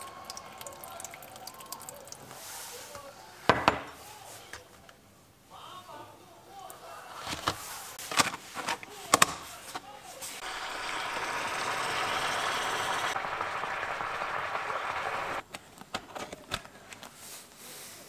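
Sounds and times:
steam hissing: 10.4 - 15.4.

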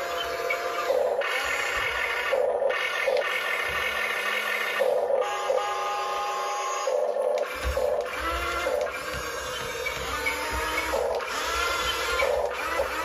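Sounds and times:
small electric motors whining: 0.0 - 13.0.

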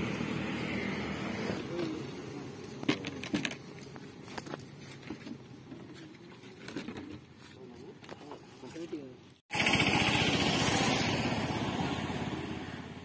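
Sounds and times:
vehicle engine passing by: 0.0 - 2.6, 9.5 - 13.0.

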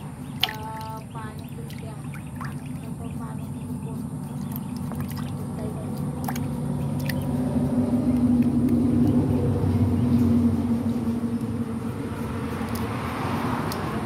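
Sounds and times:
vehicle engine humming: 0.0 - 14.0.

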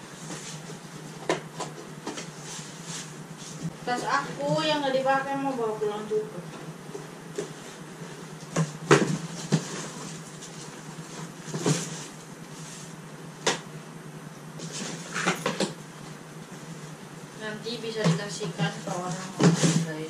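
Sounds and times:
knocks and rustles in cardboard box: 8.5 - 12.2, 18.1 - 20.0.

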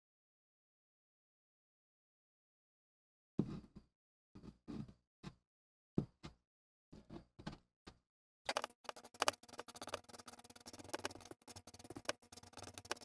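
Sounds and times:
wooden stick scraping epoxy paste: 8.5 - 13.0.

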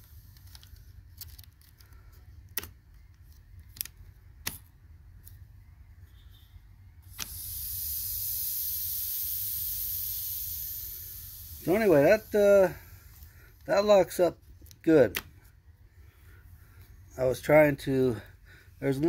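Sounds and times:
compressed air hissing: 6.1 - 14.2.

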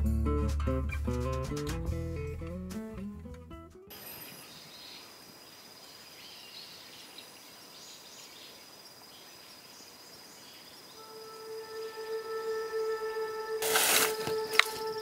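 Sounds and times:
insect trill: 3.9 - 15.0
held musical note: 11.0 - 15.0.

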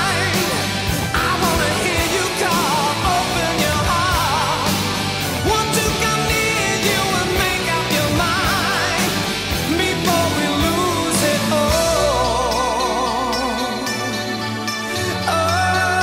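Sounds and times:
steady drum beat: 0.0 - 12.6
person singing with vibrato: 0.0 - 16.0.

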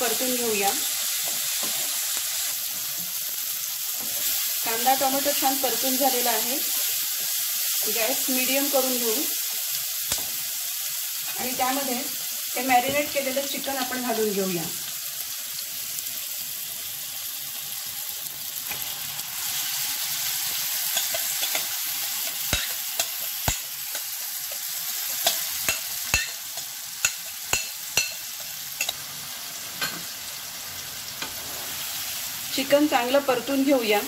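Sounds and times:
chicken sizzling in a pan: 0.0 - 34.0.

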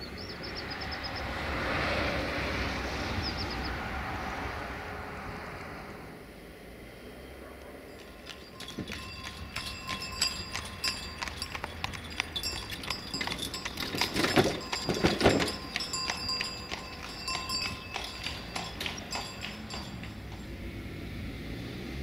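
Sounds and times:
cart rattling: 7.9 - 20.8
horse hooves clip-clopping: 7.9 - 20.8.

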